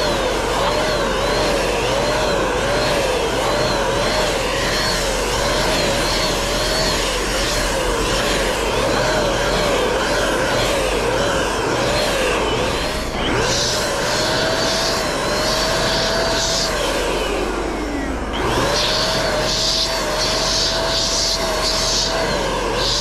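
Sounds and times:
paint sprayer motor whining: 0:00.0 - 0:23.0.

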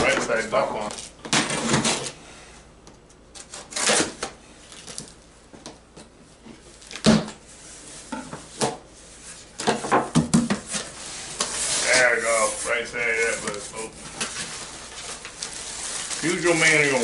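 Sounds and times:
knife cutting packing tape: 0:03.4 - 0:05.0.

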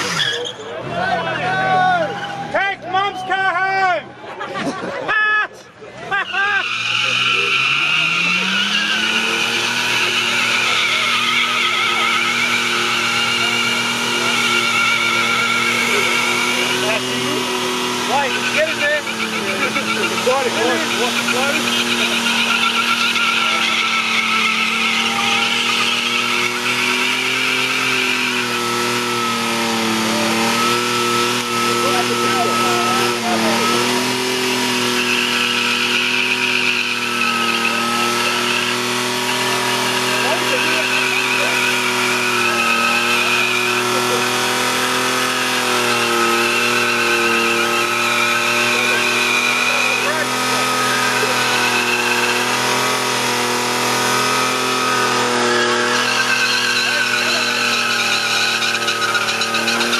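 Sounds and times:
tyres squealing: 0:00.0 - 0:03.5, 0:05.1 - 0:59.9
car engine held at revs: 0:00.0 - 0:59.9.

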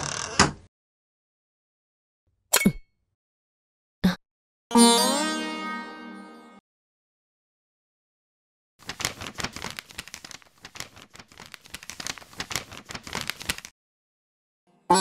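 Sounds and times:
paper crinkling and rustling: 0:08.8 - 0:13.7.

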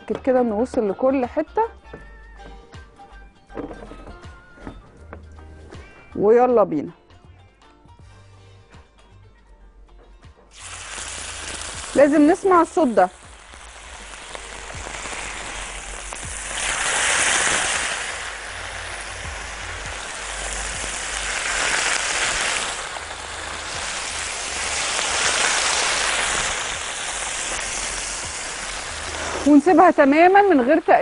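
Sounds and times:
chicken sizzling in oil: 0:10.5 - 0:31.0.

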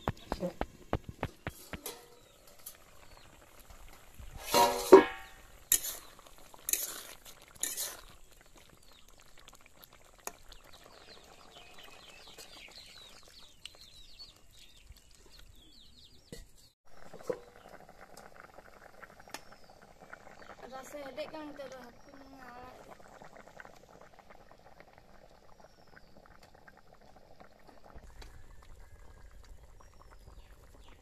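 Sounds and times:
metal lid clattering off wok: 0:04.4 - 0:05.9
metal spatula knocking wok: 0:04.5 - 0:05.3.

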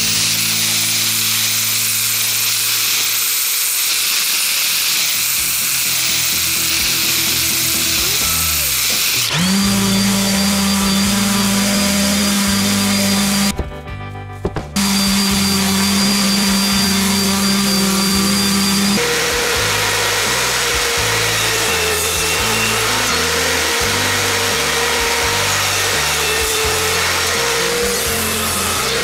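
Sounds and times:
power tool whining: 0:00.0 - 0:13.6, 0:14.7 - 0:29.0
background music: 0:05.4 - 0:29.0.

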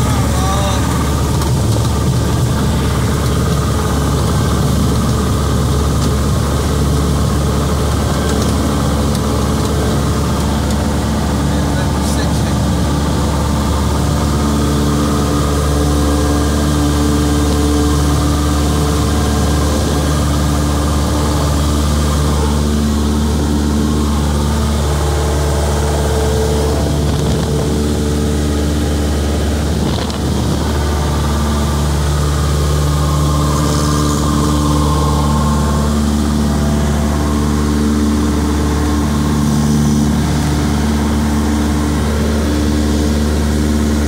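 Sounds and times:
light aircraft engine drone: 0:00.0 - 0:44.0.

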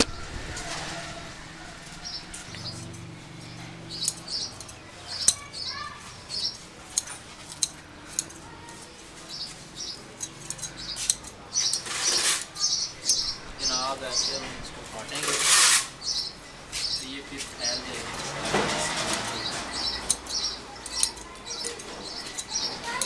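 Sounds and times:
small birds chirping: 0:00.0 - 0:23.0.

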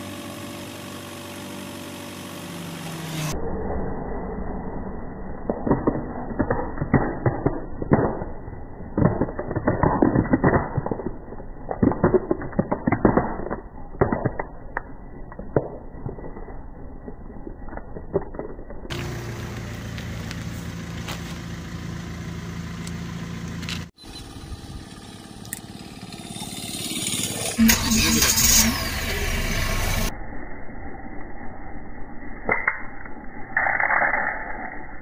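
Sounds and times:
car engine idling: 0:00.0 - 0:03.3, 0:18.9 - 0:30.1
plastic toys cracking under car tyre: 0:05.5 - 0:19.0.

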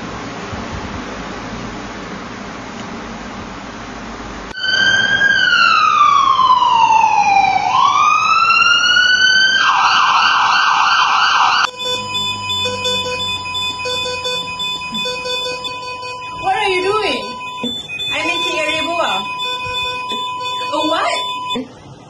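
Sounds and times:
ambulance siren wailing and yelping: 0:04.6 - 0:21.6
heart monitor beeping: 0:11.6 - 0:21.6.

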